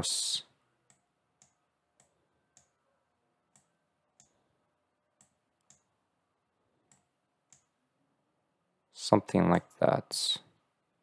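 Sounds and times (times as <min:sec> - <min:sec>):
computer mouse clicks: 0:00.8 - 0:02.8, 0:03.5 - 0:04.4, 0:05.2 - 0:05.9, 0:06.9 - 0:07.8.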